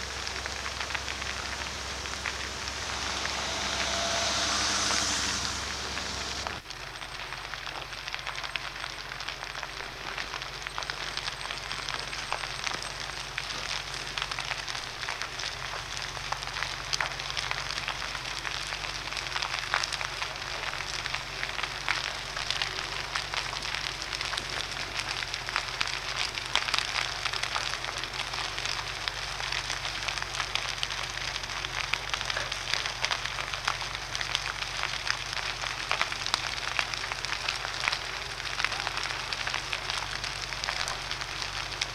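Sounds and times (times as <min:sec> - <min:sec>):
fire crackling and popping: 0:00.0 - 0:41.9.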